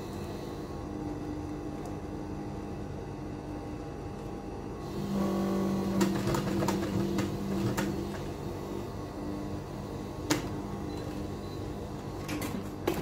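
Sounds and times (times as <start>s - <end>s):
sewing machine motor humming: 4.8s - 13.0s.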